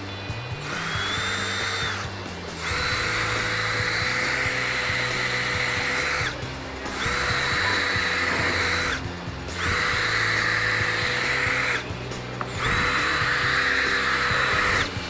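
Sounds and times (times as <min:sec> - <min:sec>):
cordless drill whining: 0:00.4 - 0:15.0.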